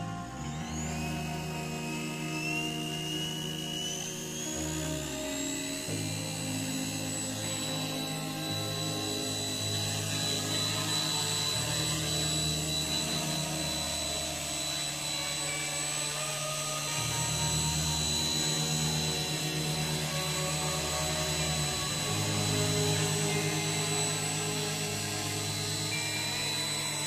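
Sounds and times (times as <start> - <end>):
rc helicopter rotor whine: 0.0 - 27.0.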